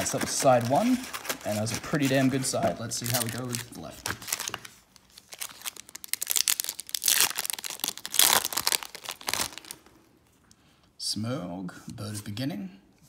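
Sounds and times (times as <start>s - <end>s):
foil wrapper crinkling: 0.0s - 9.9s
foil wrapper ripping: 0.0s - 9.9s.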